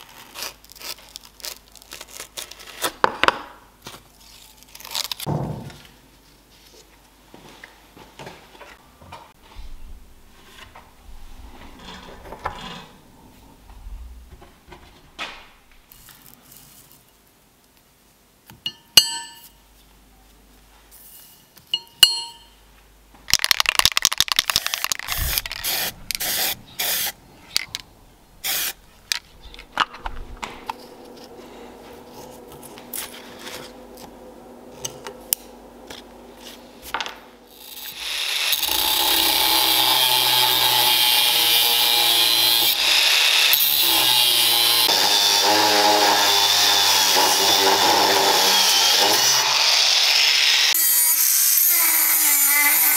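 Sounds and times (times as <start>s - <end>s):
angle grinder cutting steel: 24.5s - 27.2s, 28.4s - 28.8s, 37.5s - 52.9s
faint steady hum: 24.5s - 38.0s.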